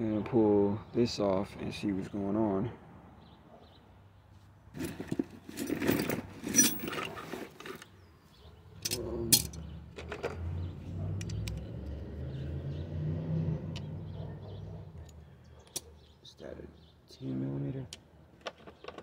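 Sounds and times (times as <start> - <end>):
metal clinking and rattling: 4.8 - 7.9, 8.8 - 10.5.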